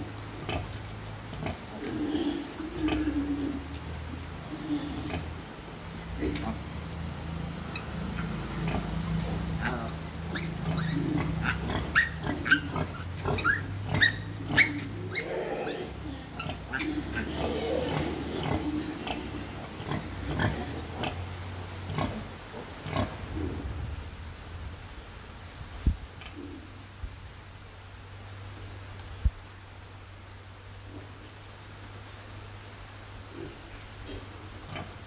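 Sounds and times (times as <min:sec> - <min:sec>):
low pig grunts: 0:01.3 - 0:03.7, 0:04.5 - 0:05.4, 0:06.1 - 0:06.7, 0:08.2 - 0:23.8
piglets squealing: 0:09.6 - 0:20.8.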